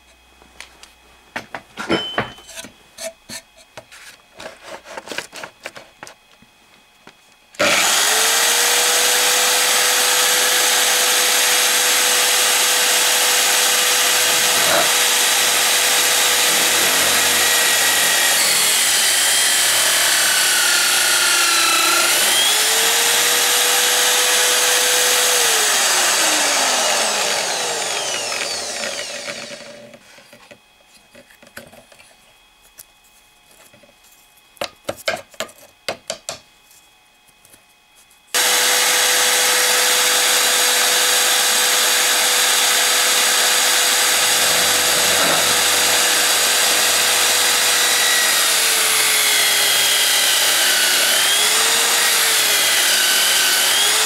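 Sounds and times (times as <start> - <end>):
drill press with hole saw cutting: 7.6 - 30.0, 38.4 - 54.0.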